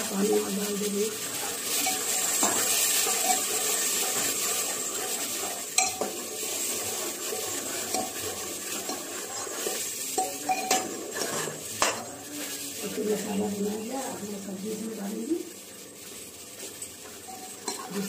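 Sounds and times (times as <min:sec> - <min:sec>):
liquid sizzling in a pot: 0:00.0 - 0:18.0
spoon clinking against pot: 0:05.8 - 0:06.2, 0:10.2 - 0:12.0.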